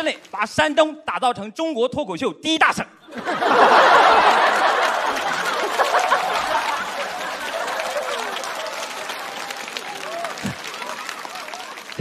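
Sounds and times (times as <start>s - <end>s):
audience laughing: 3.1s - 12.0s
audience clapping: 3.2s - 12.0s.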